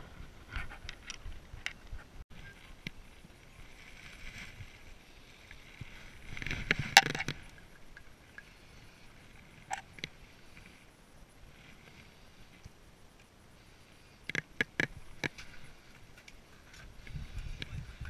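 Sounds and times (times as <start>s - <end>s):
clothing and gear rustling: 2.0s - 7.8s.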